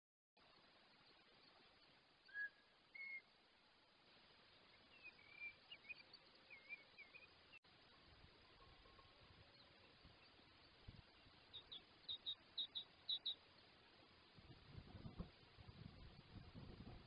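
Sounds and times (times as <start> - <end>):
steady hiss: 0.4 - 17.0
bird calls: 2.2 - 3.3, 4.8 - 7.6, 11.1 - 13.7.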